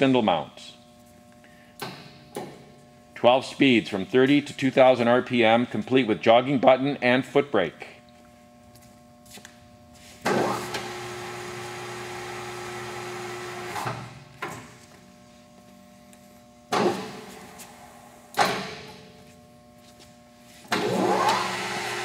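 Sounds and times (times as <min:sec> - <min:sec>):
lathe motor running: 0:10.2 - 0:15.8, 0:20.4 - 0:22.0.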